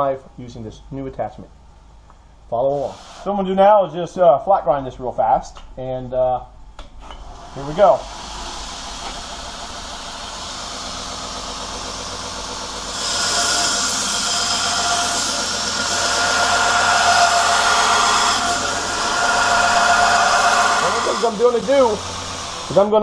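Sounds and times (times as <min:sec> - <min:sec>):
belt grinder whirring: 0:07.0 - 0:23.0
blade grinding hiss: 0:12.7 - 0:22.9.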